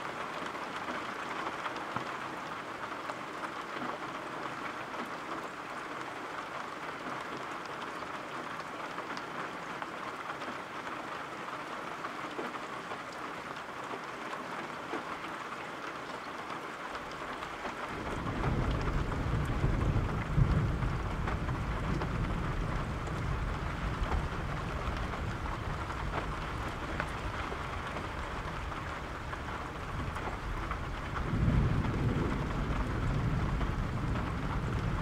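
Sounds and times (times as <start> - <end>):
steady rain: 0.0 - 35.0
rolling thunder: 17.9 - 35.0.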